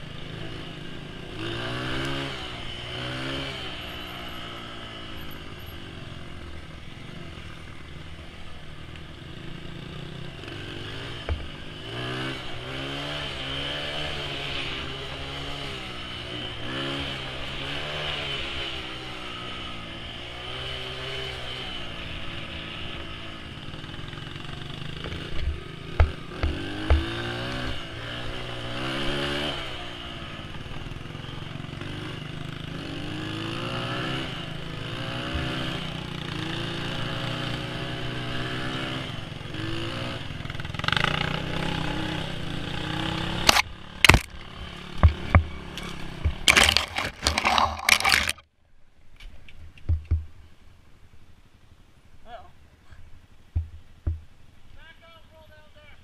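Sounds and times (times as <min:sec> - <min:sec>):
dirt bike engine revving: 0:00.0 - 0:07.6, 0:09.1 - 0:48.4
sharp knocks: 0:25.1 - 0:27.2, 0:49.8 - 0:50.3, 0:53.5 - 0:54.3.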